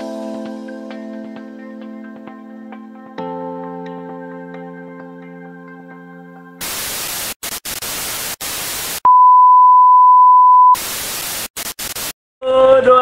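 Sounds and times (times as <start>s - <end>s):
tv static hissing: 6.6s - 9.1s, 10.6s - 12.2s
steady test-tone beep: 9.0s - 10.8s.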